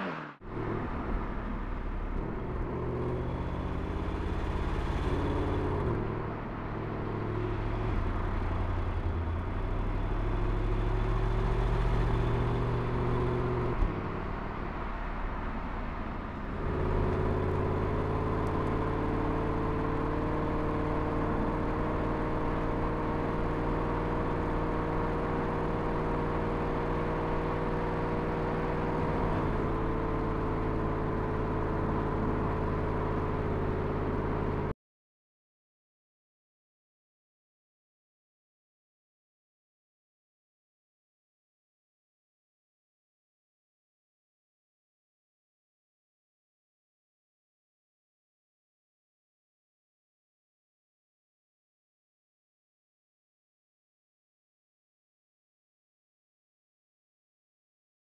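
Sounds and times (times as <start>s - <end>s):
car engine driving: 0.0s - 34.7s.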